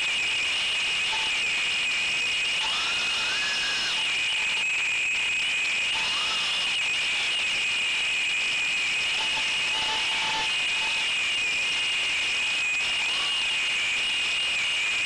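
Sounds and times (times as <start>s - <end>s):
drone propellers whining: 2.5s - 5.0s, 5.7s - 14.7s.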